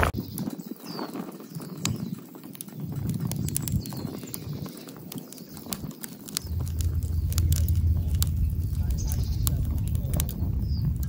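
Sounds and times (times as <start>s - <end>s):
wood fire crackling and popping: 0.0s - 11.0s
low rumble: 5.5s - 11.0s.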